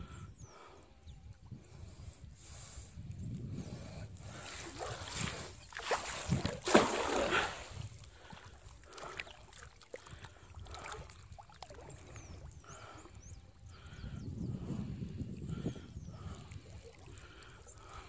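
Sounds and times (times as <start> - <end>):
river water splashing: 4.4 - 13.1.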